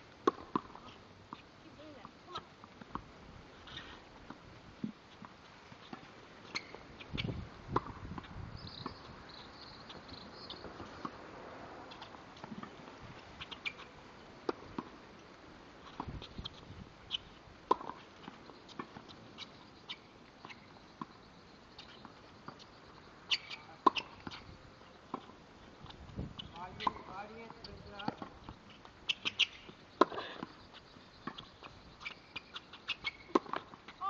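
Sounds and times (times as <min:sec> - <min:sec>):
tennis balls struck by rackets: 0:00.2 - 0:03.1, 0:05.2 - 0:09.0, 0:17.1 - 0:21.1, 0:23.3 - 0:25.4, 0:26.4 - 0:30.6, 0:31.2 - 0:34.0
balls bouncing on hard court: 0:06.6 - 0:09.0, 0:26.4 - 0:28.6, 0:33.1 - 0:34.0.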